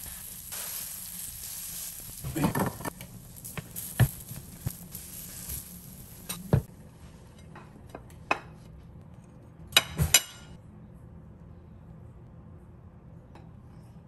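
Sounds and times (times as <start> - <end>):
pancakes sizzling in a frying pan: 0.0 - 6.7.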